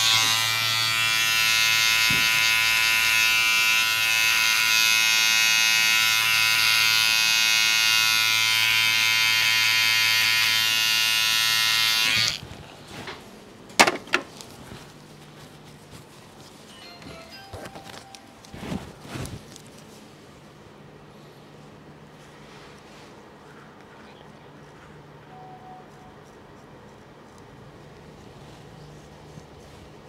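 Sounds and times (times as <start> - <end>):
electric hair clipper buzzing: 0.0 - 12.4.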